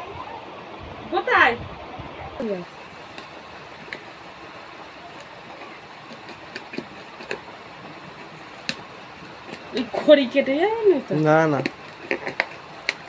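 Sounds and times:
scissors cutting packing tape: 11.5 - 13.0.

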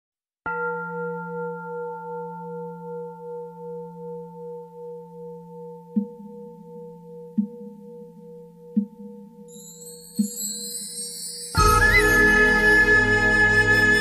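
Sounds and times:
singing bowl ringing: 0.5 - 5.9, 9.5 - 12.1.

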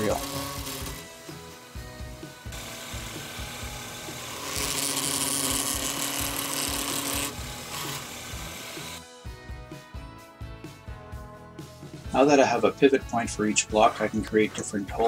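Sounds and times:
end mill cutting aluminum: 0.0 - 9.1
background music: 0.0 - 15.0.

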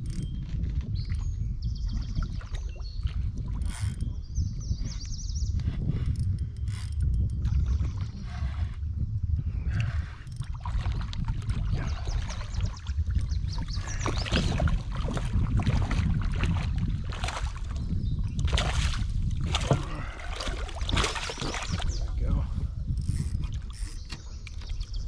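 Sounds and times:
wind rumble on microphone: 0.0 - 25.0
fish thrashing and splashing: 9.9 - 22.0.

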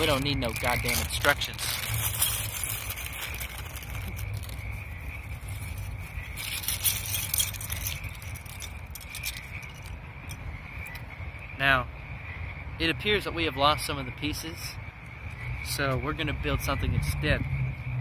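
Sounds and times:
plastic bag rustling: 0.0 - 10.0
plastic bricks rattling and clicking: 0.0 - 11.0.

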